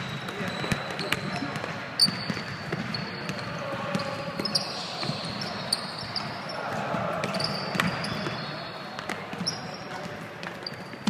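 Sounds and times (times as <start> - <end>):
sneakers squeaking on court: 0.0 - 11.0
basketball bouncing on floor: 0.2 - 4.1.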